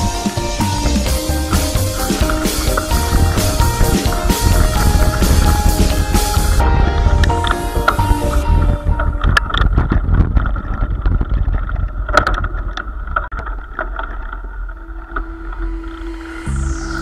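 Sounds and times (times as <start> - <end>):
bike rattling over stones: 0.0 - 6.6, 7.2 - 15.4
wind rumble on microphone: 1.4 - 14.3.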